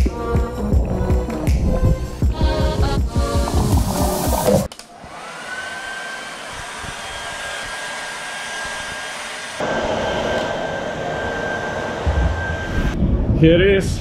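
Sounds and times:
hair dryer blowing: 2.3s - 13.0s.

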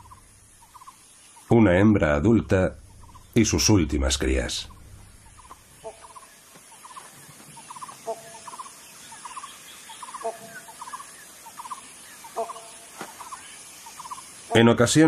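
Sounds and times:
tonal animal call: 7.6s - 8.7s.

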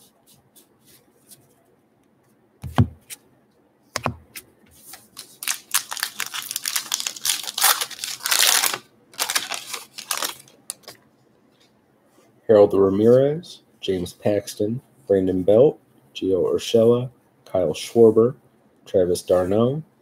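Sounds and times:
thumps on wooden tabletop: 2.6s - 3.0s
wrapper tearing and crinkling: 5.1s - 10.9s.

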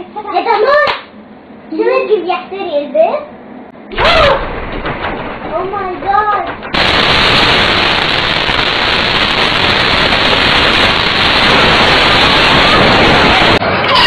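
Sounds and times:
loud static hiss: 3.9s - 14.0s.

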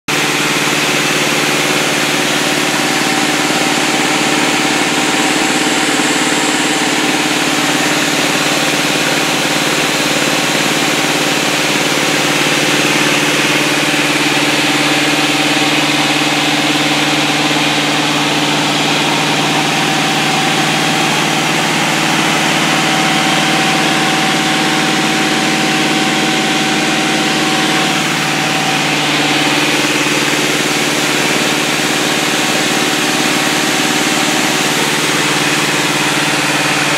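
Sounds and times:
aircraft engine and propeller: 0.1s - 36.9s.

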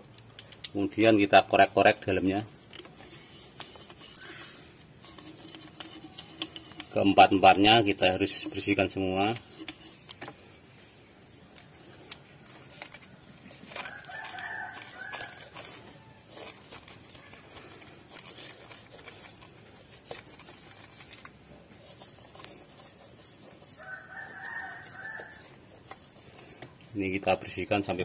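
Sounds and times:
rag rubbing and scraping: 0.9s - 28.0s
rooster crowing: 13.8s - 16.2s, 23.6s - 25.6s.

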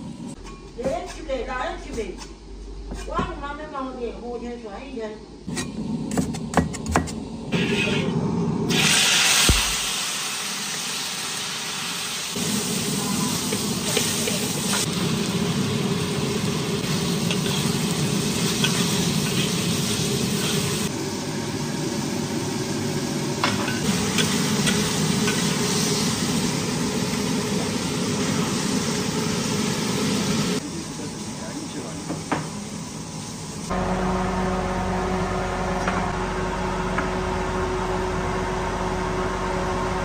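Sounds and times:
spatula scraping a wok: 0.3s - 3.4s, 7.5s - 8.2s, 16.8s - 20.9s
food sizzling in hot oil: 8.7s - 33.7s.

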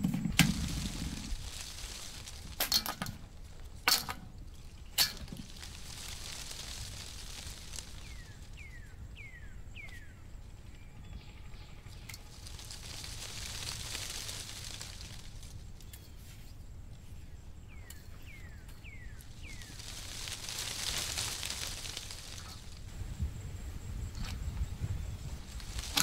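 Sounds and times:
steady low rumble: 0.0s - 15.8s.

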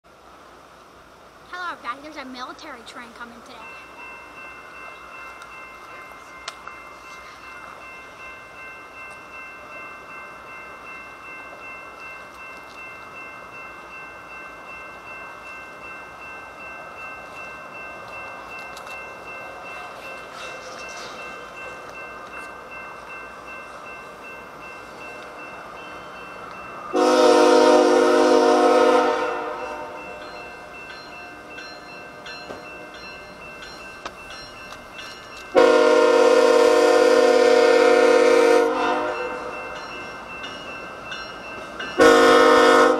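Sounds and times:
crossing bell ringing: 1.5s - 42.9s
locomotive air horn blasts: 26.9s - 30.0s, 35.6s - 39.4s, 42.0s - 42.9s.

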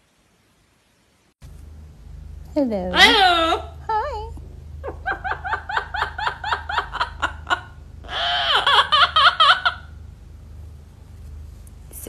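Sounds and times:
parrot imitating laughter: 2.9s - 3.8s, 4.8s - 10.0s.

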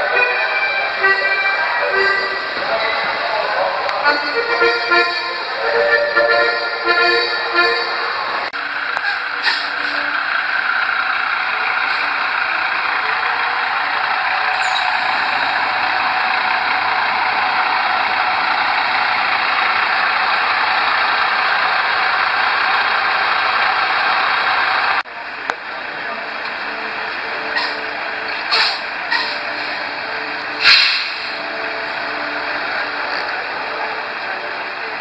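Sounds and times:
truck engine rolling by: 0.0s - 35.0s.

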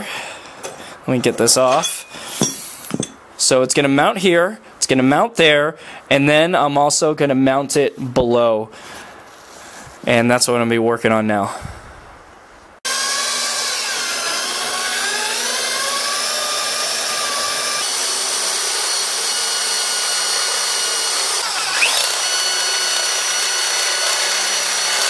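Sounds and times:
cordless drill boring into steel: 12.9s - 25.0s.

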